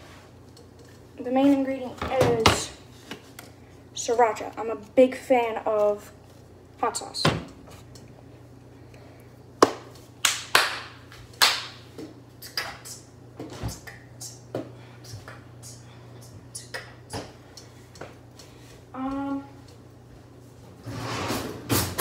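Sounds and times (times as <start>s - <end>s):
steady low hum: 0.0s - 22.0s
kitchen knocks and clatter: 2.0s - 2.8s.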